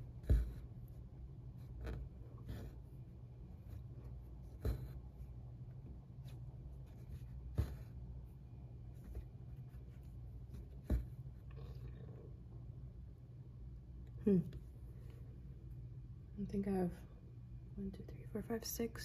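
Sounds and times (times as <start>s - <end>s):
faint rasp of thread: 0.0s - 5.3s, 6.2s - 8.3s
needle and thread rubbing cloth: 0.0s - 5.4s, 6.2s - 11.5s
low steady hum: 0.0s - 19.0s.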